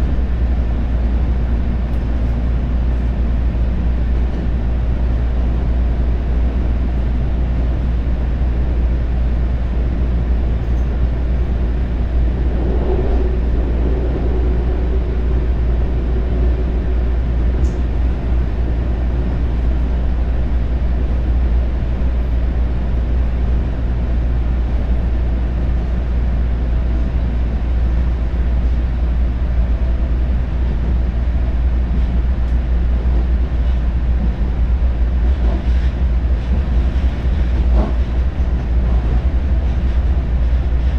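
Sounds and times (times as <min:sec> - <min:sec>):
train rumbling over bridge: 0:00.0 - 0:40.9
faint whine: 0:10.7 - 0:20.8.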